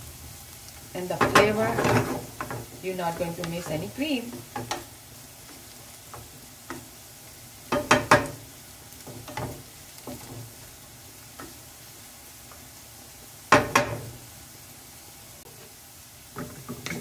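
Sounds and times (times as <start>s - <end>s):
vegetables sizzling in a frying pan: 0.0s - 17.0s
wooden spatula scraping a pan: 1.2s - 6.9s.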